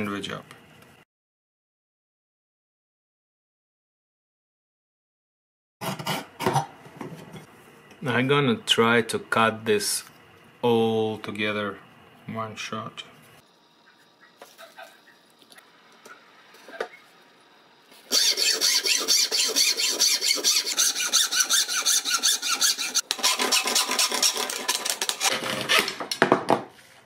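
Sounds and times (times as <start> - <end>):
hacksaw cutting: 5.8 - 6.6, 18.1 - 26.0.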